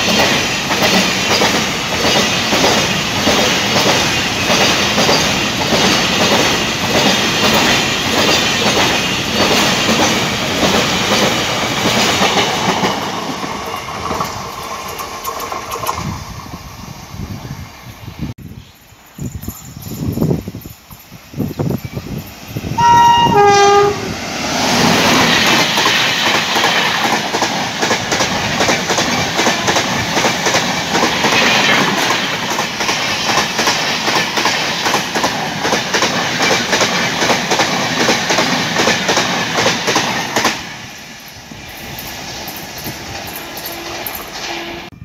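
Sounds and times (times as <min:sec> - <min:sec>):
train wheels clattering over rail joints: 0:00.0 - 0:16.7, 0:24.6 - 0:40.8
two-note train horn blast: 0:22.8 - 0:24.2, 0:43.5 - 0:45.0.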